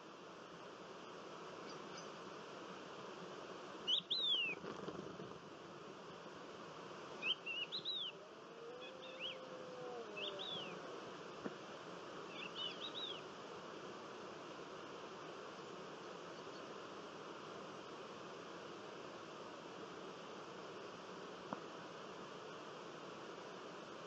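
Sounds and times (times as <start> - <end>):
steady background hiss: 0.0 - 24.0
small birds chirping: 1.6 - 2.2, 3.8 - 4.6, 7.2 - 8.2, 8.8 - 10.8, 12.3 - 13.3.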